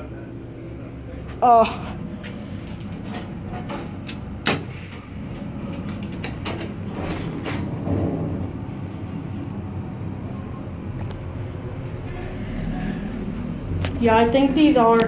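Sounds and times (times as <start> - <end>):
elevator low rumble: 0.0 - 15.0
low machinery hum: 0.0 - 15.0
elevator doors sliding closed: 1.9 - 15.0.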